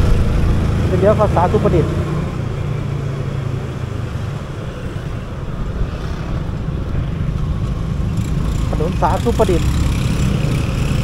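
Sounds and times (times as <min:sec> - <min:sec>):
wind buffeting microphone: 0:01.9 - 0:09.0.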